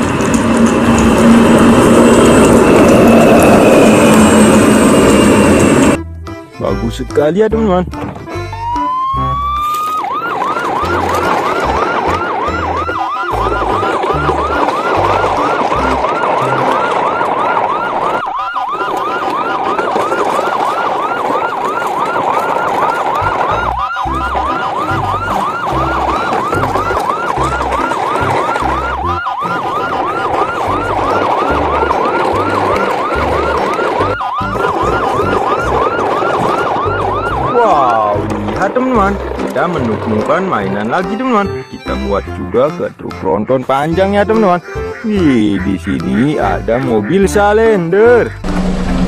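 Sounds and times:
electronic siren wail: 0:00.0 - 0:06.0, 0:08.5 - 0:42.3
low pulsing beat: 0:48.3 - 0:49.0.

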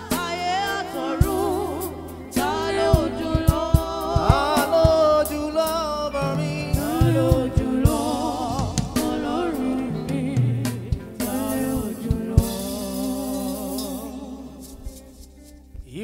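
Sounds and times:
voices singing: 0:00.0 - 0:14.9
bass line: 0:00.0 - 0:16.0
drum kit beat: 0:00.0 - 0:16.0.

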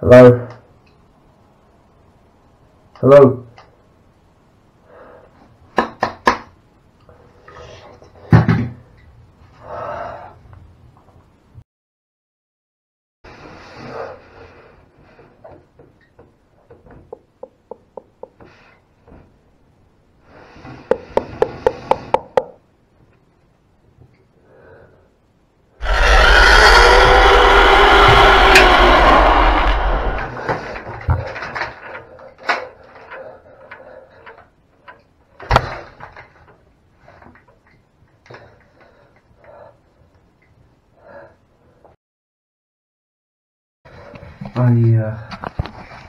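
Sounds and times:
loud sudden sound: 0:25.8 - 0:30.8.

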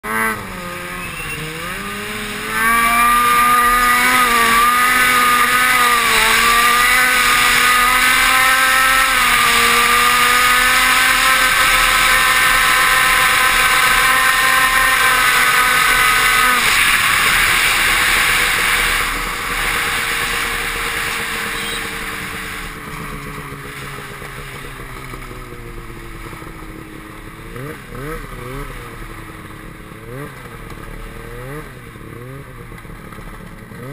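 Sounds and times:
snowmobile engine revving: 0:00.0 - 0:33.9
rushing noise: 0:00.4 - 0:22.8.

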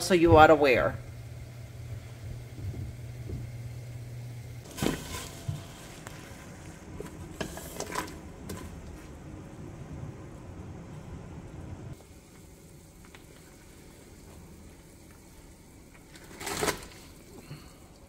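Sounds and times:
steady low hum: 0:00.0 - 0:12.9
water bubbling at a boil: 0:01.0 - 0:07.5.

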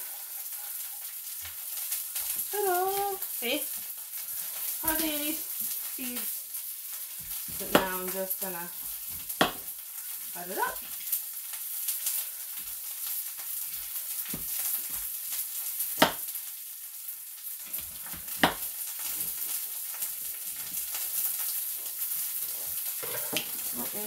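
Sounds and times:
vegetables sizzling in a frying pan: 0:00.0 - 0:24.0
knife knocking on cutting board: 0:09.4 - 0:09.6, 0:18.4 - 0:18.6.

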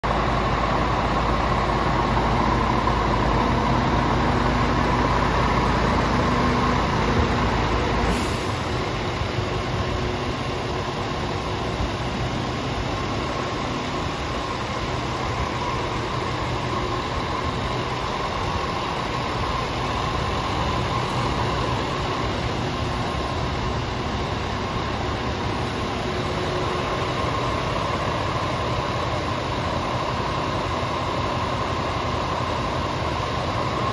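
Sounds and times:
diesel engine idling: 0:00.0 - 0:33.9.

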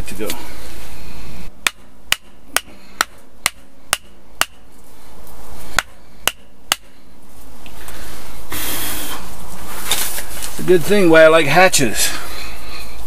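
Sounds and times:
hatchet striking as hammer: 0:01.6 - 0:04.6, 0:05.8 - 0:07.0.

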